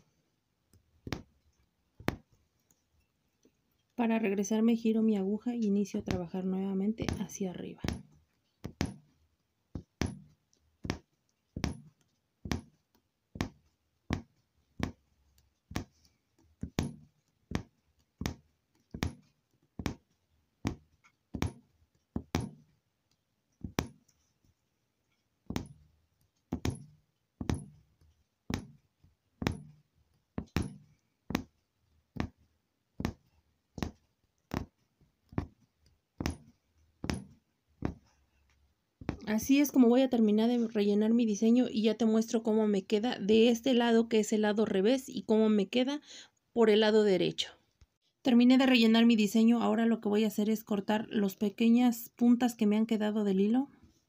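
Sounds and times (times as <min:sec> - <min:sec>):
punch needle tapping through fabric: 0:00.7 - 0:02.8, 0:05.4 - 0:24.3, 0:25.1 - 0:39.7.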